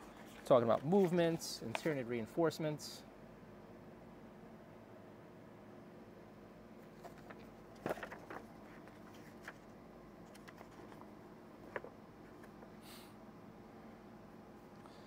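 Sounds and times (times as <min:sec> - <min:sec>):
faint room hum: 0:00.0 - 0:15.0
pages turning: 0:00.1 - 0:02.0, 0:06.8 - 0:12.7.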